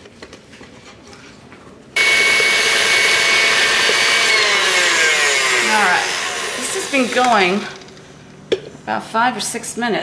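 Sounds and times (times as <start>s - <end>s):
stand mixer whining: 2.0s - 7.4s.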